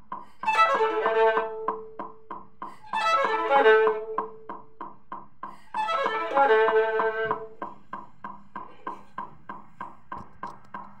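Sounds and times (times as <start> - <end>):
violin playing: 0.4 - 2.0, 2.9 - 4.5, 5.8 - 7.6
metronome clicking: 0.8 - 2.5.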